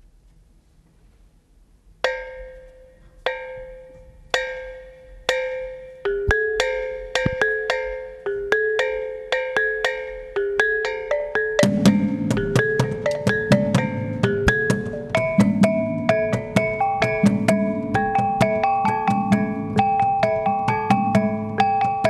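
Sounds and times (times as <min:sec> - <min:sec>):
tuned gongs struck: 0:03.3 - 0:09.0, 0:10.8 - 0:22.0.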